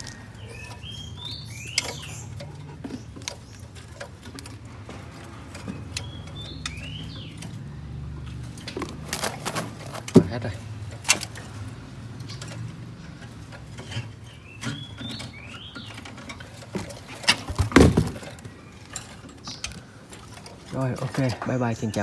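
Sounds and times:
songbird whistling: 0.4 - 2.3.

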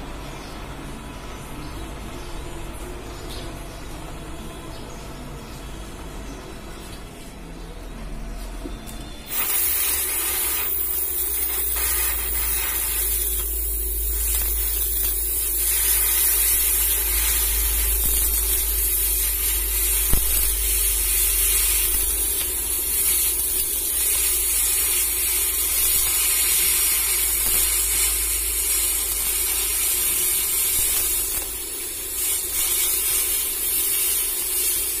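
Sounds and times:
cutting torch hissing: 9.2 - 35.0.

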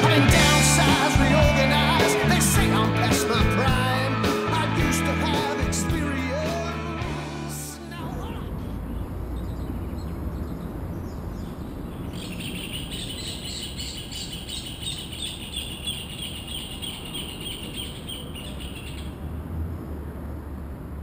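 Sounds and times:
birds singing a duet: 7.9 - 19.2.

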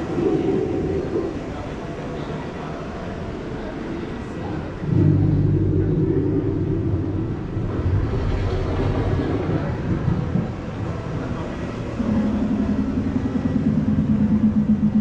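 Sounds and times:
deep steady rumble: 0.0 - 15.0
low pulsing droning hum: 0.0 - 15.0.

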